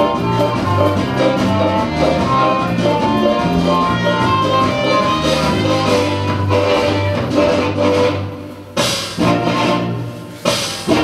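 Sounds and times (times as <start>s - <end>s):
bass line: 0.0s - 8.5s
country music: 0.0s - 11.0s
guitar: 0.0s - 11.0s.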